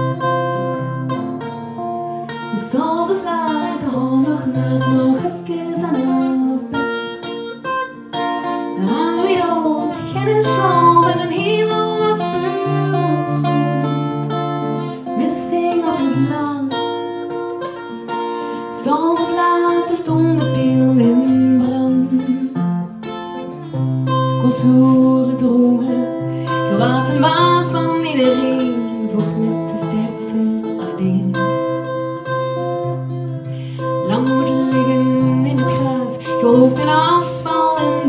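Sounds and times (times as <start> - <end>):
acoustic guitar chords: 0.0 - 38.0
woman singing: 2.2 - 17.5, 18.3 - 22.9, 24.2 - 32.3, 33.6 - 38.0.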